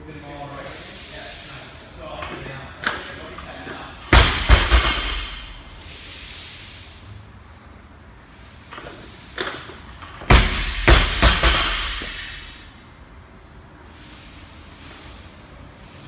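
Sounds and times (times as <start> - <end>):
barbell landing with thud: 4.1 - 5.8, 8.8 - 12.6.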